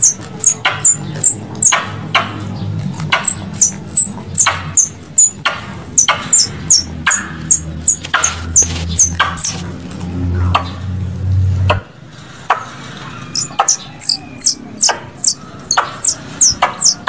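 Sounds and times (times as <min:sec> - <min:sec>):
squirrel chewing crunches: 0:00.0 - 0:10.2.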